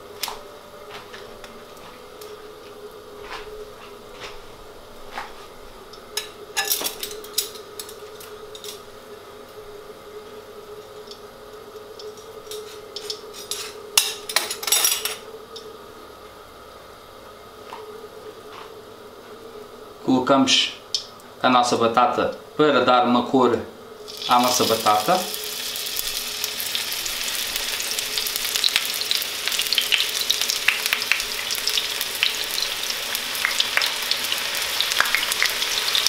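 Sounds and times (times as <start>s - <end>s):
faint steady hum: 0.0s - 36.0s
kitchenware clinking: 12.5s - 15.2s.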